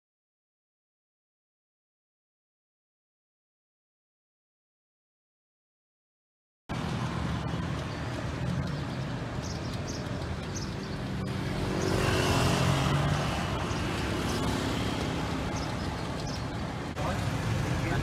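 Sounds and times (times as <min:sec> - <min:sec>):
motorcycle engine: 0:06.7 - 0:18.0.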